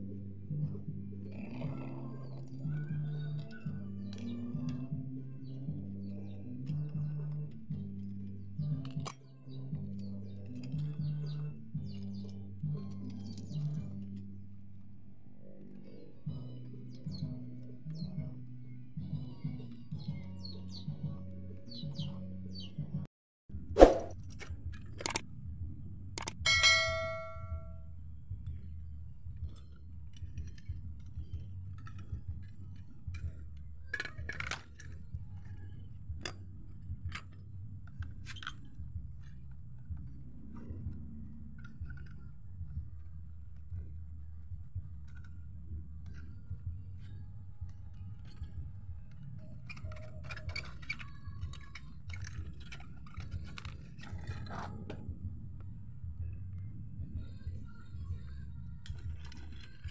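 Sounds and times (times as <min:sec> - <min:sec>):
bright bell-like chime: 0:26.5 - 0:27.8
metal parts clinking and knocking: 0:29.5 - 0:38.8, 0:41.5 - 0:42.2, 0:47.9 - 0:55.2, 0:58.8 - 0:59.9
low steady rumble: 0:34.9 - 0:59.9
steady low hum: 0:51.1 - 0:59.9.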